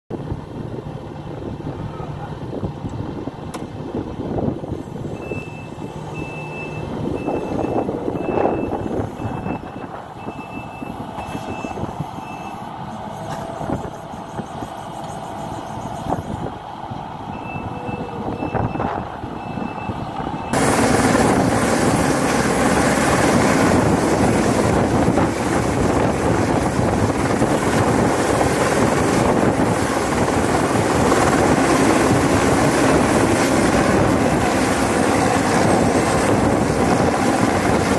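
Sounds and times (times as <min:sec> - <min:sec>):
helicopter rotor and turbine: 0:00.1 - 0:37.9
track loader running: 0:00.2 - 0:37.9
reversing alarm beeping: 0:05.2 - 0:16.4, 0:17.3 - 0:20.6.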